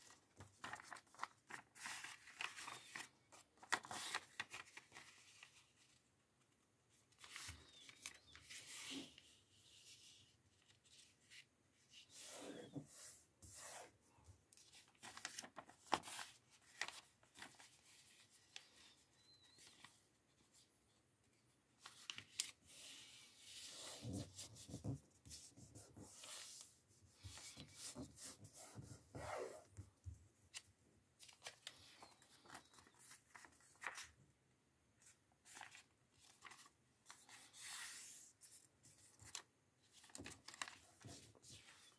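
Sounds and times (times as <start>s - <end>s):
paper rustling and crackling: 0.0s - 6.0s, 14.6s - 20.0s, 31.2s - 34.2s, 35.0s - 41.9s.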